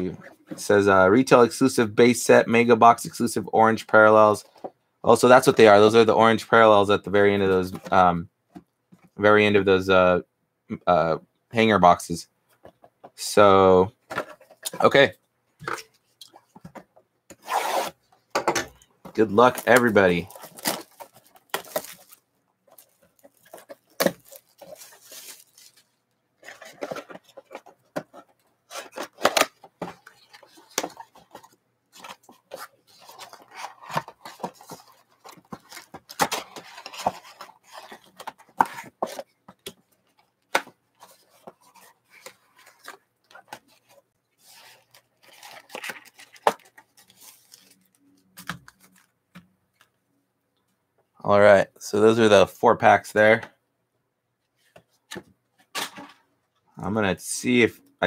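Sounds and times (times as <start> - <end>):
foil card packs sliding: 19.2 - 22.2
plastic wrap crinkling: 19.2 - 27.6, 44.5 - 49.1.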